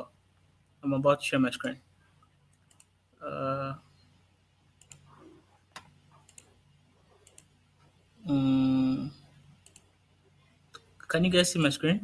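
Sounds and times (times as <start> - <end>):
mouse or keyboard clicks: 5.8 - 6.5.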